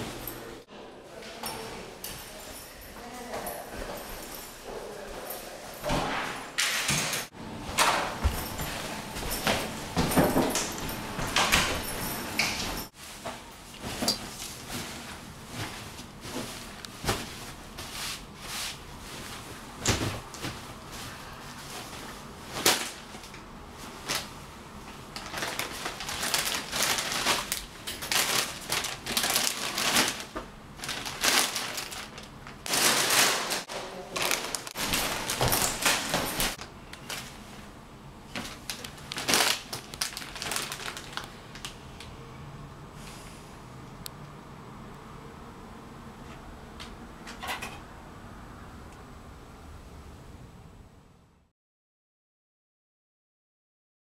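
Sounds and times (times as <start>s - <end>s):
handling knocks and rustling: 1.3s - 37.6s.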